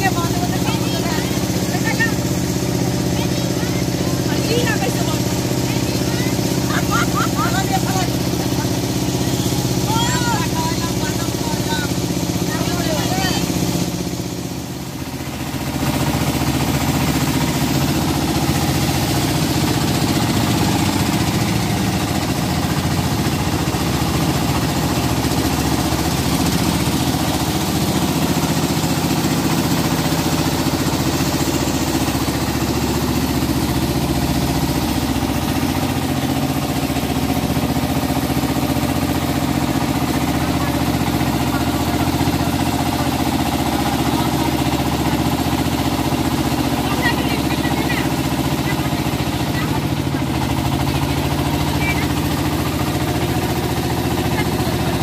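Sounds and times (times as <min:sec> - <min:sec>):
outboard engine running: 0:00.0 - 0:55.0.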